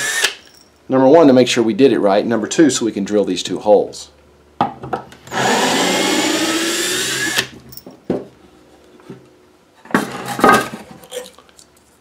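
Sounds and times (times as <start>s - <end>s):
cordless drill boring wood: 0.0s - 0.4s, 5.3s - 7.5s
wood knocking and clattering: 7.8s - 8.3s.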